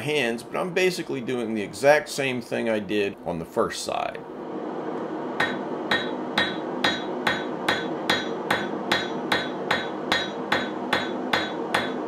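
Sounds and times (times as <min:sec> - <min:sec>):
hammer striking steel on anvil: 0:05.4 - 0:12.0.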